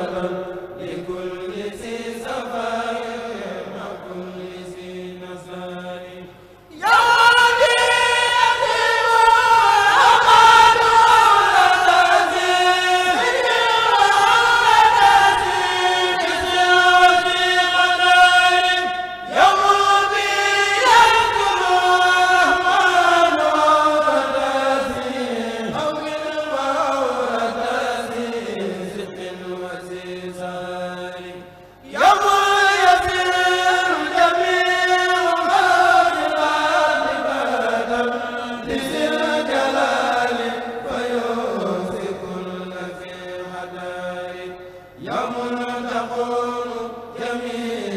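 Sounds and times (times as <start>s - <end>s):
men chanting in unison: 0.0s - 47.9s.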